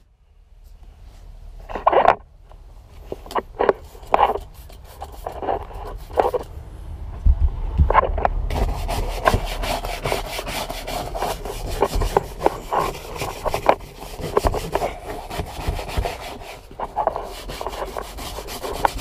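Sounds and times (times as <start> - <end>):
stiff brush scrubbing upholstery: 3.8 - 6.4, 8.5 - 19.0.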